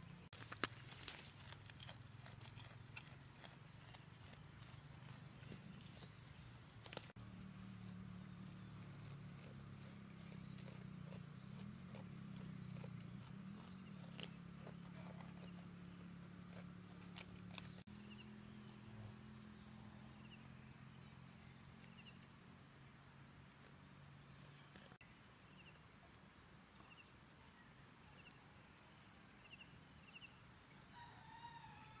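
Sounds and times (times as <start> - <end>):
goat chewing leaves: 0.4 - 17.9.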